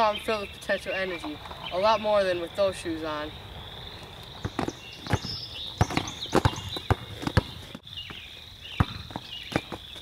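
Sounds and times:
insects droning: 0.0s - 10.0s
basketball thuds: 4.4s - 8.2s, 8.8s - 9.9s.

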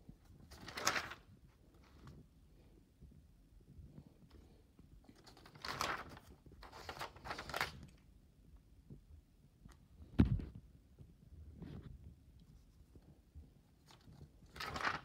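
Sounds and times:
paper pages rustling: 0.2s - 2.2s, 5.1s - 8.0s, 13.8s - 15.0s.

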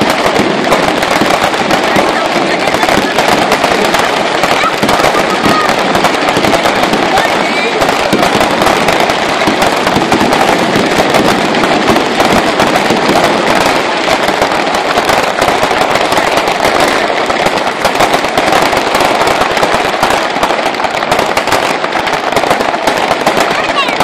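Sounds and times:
fireworks crackling: 0.0s - 24.0s.

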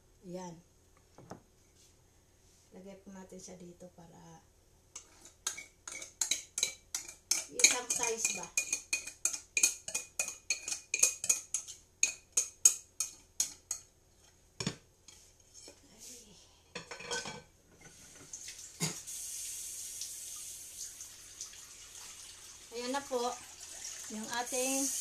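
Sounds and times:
kitchen tap running: 18.2s - 25.0s.

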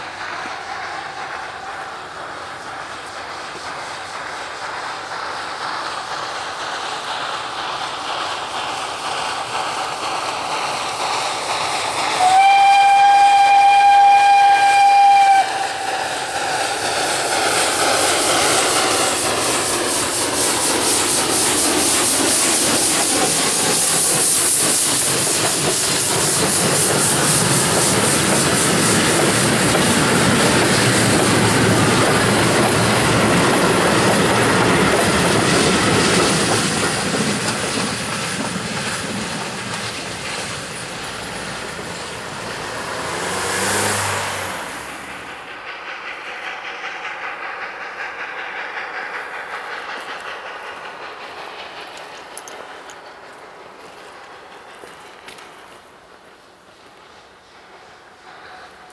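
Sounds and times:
train coaches clickety-clack: 0.0s - 58.9s
steam locomotive whistle: 12.2s - 15.9s.

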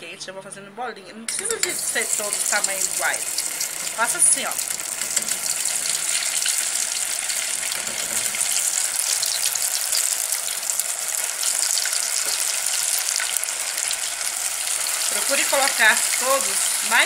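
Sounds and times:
oil sizzling and crackling: 1.3s - 17.0s.

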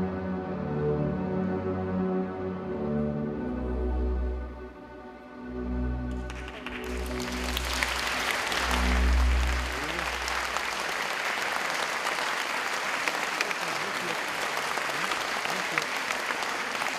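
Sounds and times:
orchestral chords: 0.0s - 12.4s
audience applauding: 6.1s - 16.9s.

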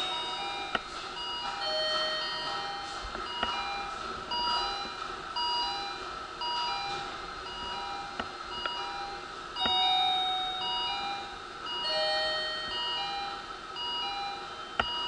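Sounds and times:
electronic chime tones: 0.0s - 4.6s, 11.8s - 14.8s
steady hum: 0.0s - 15.0s.

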